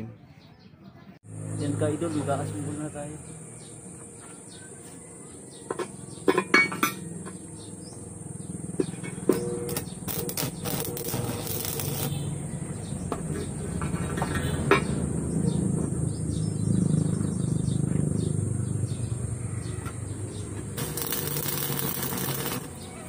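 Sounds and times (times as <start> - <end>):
metal scraping and clinking: 8.9 - 12.2, 20.8 - 22.9.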